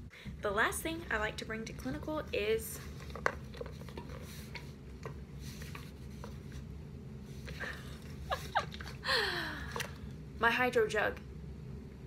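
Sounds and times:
low steady hum: 0.0s - 12.0s
plastic jug rustling: 1.8s - 6.7s.

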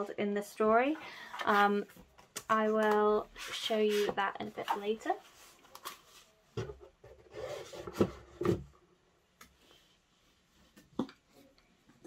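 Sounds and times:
book covers rubbing and sliding: 3.3s - 5.6s.

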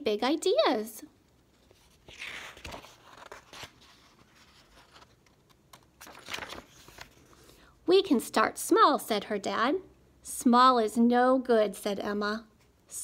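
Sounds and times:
paper page rustling: 1.5s - 7.5s.

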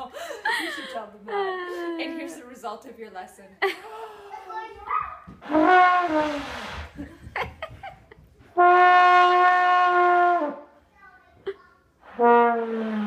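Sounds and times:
trombone notes: 5.4s - 6.8s, 8.6s - 10.7s, 12.0s - 13.0s.

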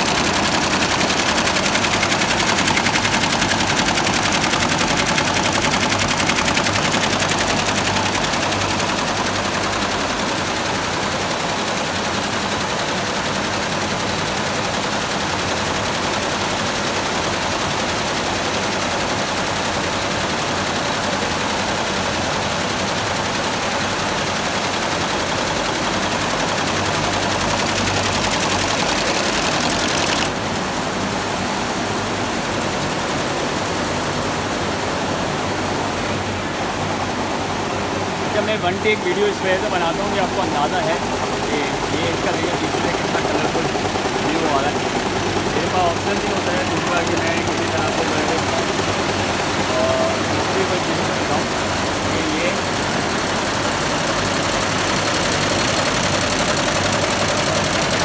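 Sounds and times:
embroidery machine needle clatter: 0.0s - 16.5s, 24.2s - 30.4s, 38.4s - 58.0s.

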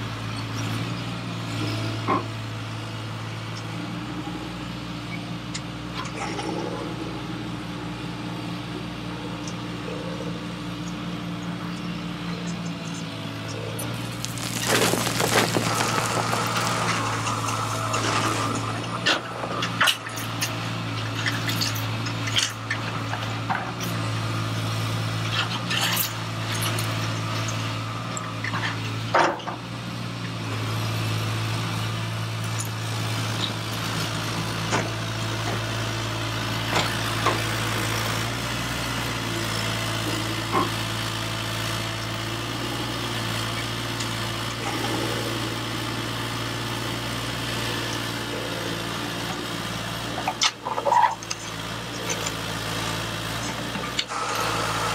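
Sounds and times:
stones clicking into plastic bed: 14.0s - 17.0s
small electric motors humming: 50.5s - 54.9s.

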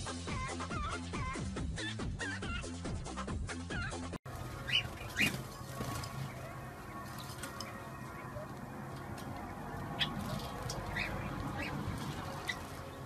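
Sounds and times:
finch calls: 3.8s - 13.0s
bird splashing in water: 4.3s - 13.0s.

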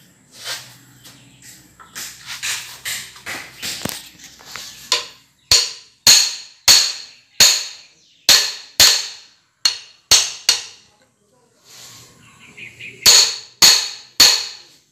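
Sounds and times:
hammer striking metal: 4.9s - 10.9s, 13.0s - 14.8s.

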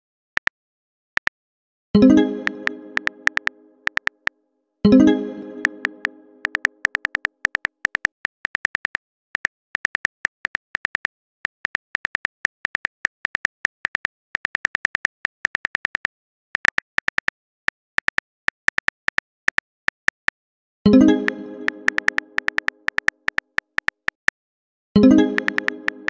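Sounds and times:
keyboard typing clicks: 2.0s - 4.3s, 4.9s - 17.3s, 20.9s - 24.4s, 25.0s - 26.0s.

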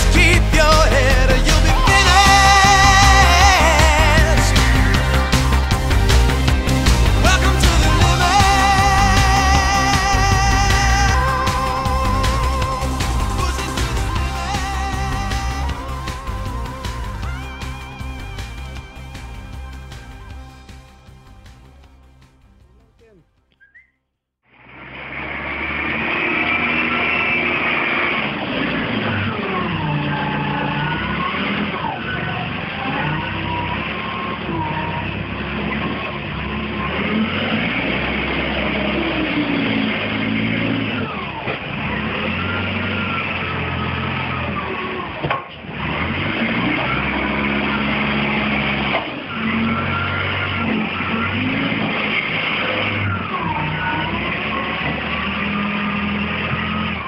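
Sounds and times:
tractor engine under load: 0.0s - 23.6s, 24.5s - 57.0s
high whine bending in pitch: 0.0s - 23.8s
loader pushing manure on concrete: 24.6s - 57.0s.

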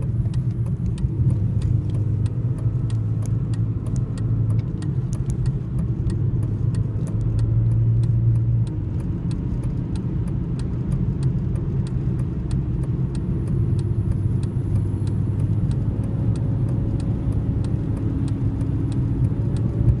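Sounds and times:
engine and road drone: 0.0s - 20.0s
faint high ticks: 0.0s - 20.0s.

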